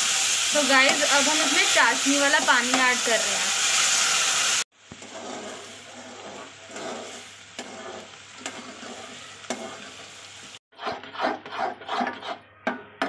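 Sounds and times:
syrup sizzling and bubbling: 0.0 - 11.2
ladle scraping a pan: 4.9 - 10.1, 10.7 - 12.5.

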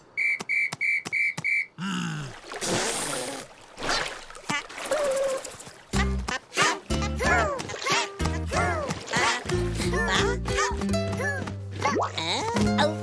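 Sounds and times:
water splash: 2.2 - 6.0.

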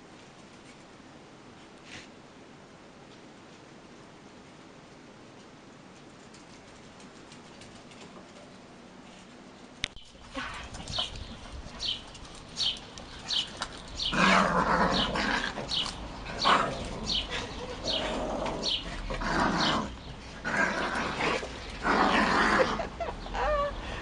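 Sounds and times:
small dogs growling in play: 13.2 - 24.0.

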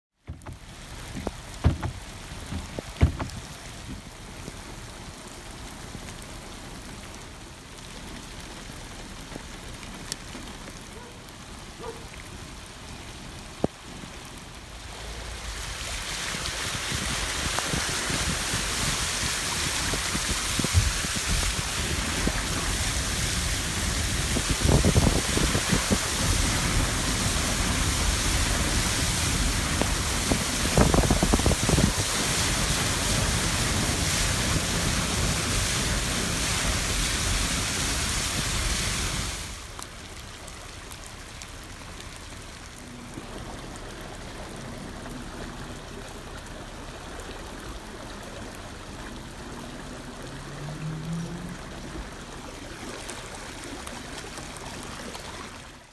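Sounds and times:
running flood water: 0.1 - 55.9
tyres spraying flood water: 0.2 - 55.9.

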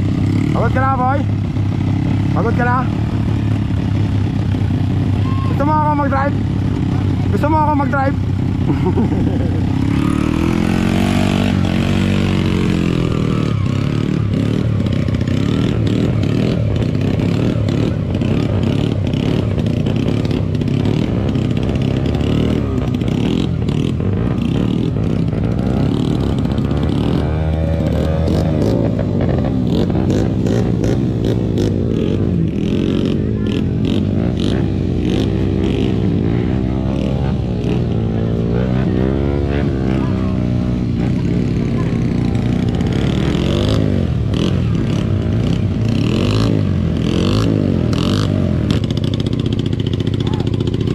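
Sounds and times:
dirt bike engines revving: 0.0 - 50.9.

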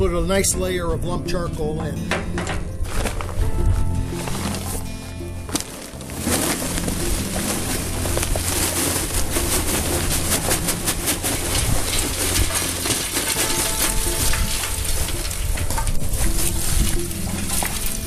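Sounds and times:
charcoal clattering into metal firebox: 1.8 - 3.4, 5.4 - 18.0.

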